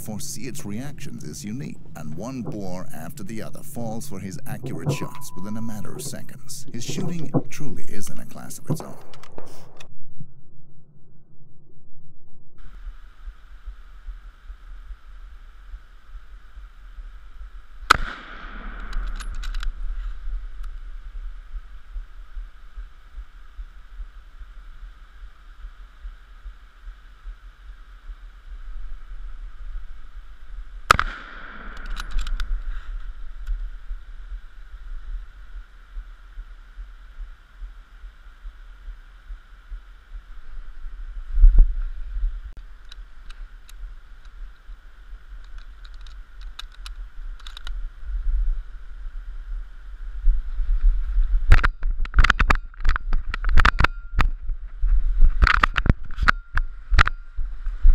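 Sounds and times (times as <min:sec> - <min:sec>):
steady low rumble: 0:00.0 - 0:57.9
rifle shots with echo: 0:17.9 - 0:19.4, 0:30.9 - 0:32.6
rifle action clicks: 0:17.9 - 0:19.8, 0:30.9 - 0:32.5, 0:45.4 - 0:47.8.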